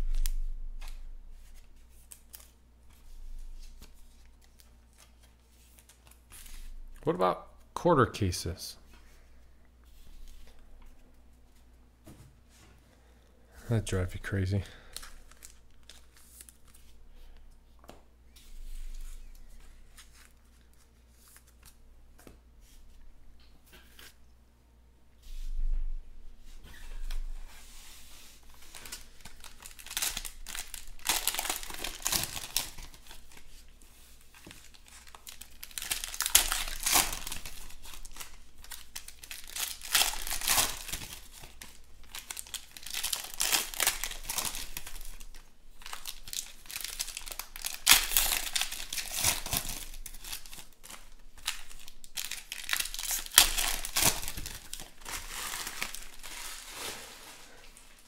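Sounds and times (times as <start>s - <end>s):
foil wrappers tearing and crinkling: 14.8s - 16.9s, 28.4s - 33.7s, 34.4s - 57.6s.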